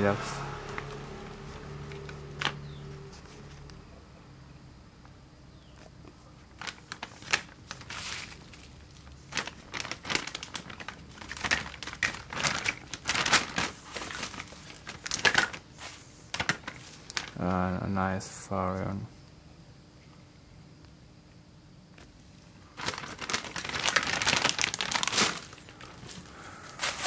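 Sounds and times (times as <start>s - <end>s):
plastic bag crinkling: 0.6s - 2.8s, 6.4s - 17.6s, 22.6s - 27.0s
plastic toys shifting: 6.5s - 17.4s, 22.8s - 27.0s.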